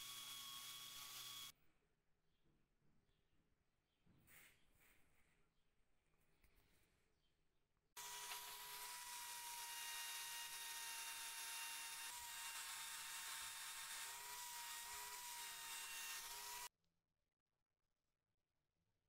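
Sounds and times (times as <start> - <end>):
electric drill whining: 0.0 - 1.5, 8.0 - 16.7.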